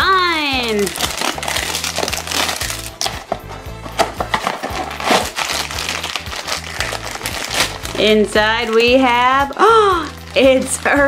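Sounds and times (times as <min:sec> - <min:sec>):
background music: 0:00.0 - 0:11.0
plastic and foil crinkling: 0:00.1 - 0:11.0.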